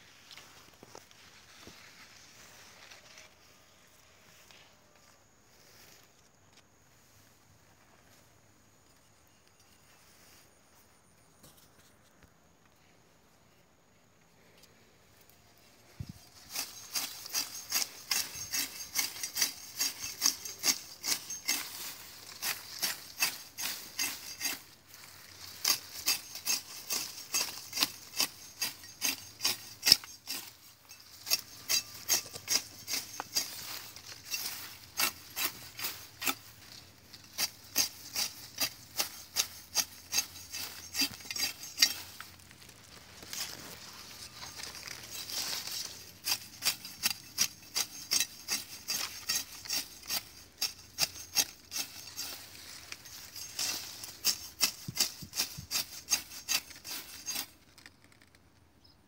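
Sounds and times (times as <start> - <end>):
sickle slicing grass stems: 16.2 - 57.6.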